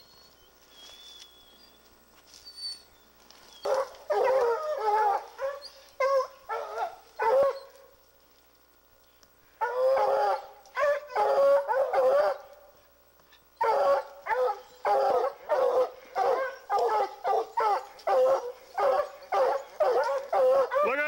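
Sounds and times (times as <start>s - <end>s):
hounds baying: 3.4s - 7.8s, 9.6s - 12.6s, 13.6s - 21.0s.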